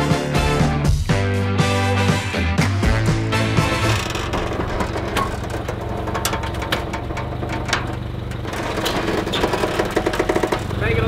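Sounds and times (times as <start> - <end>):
forklift engine running: 2.6 - 11.0
metallic clicks and knocks: 3.7 - 10.7.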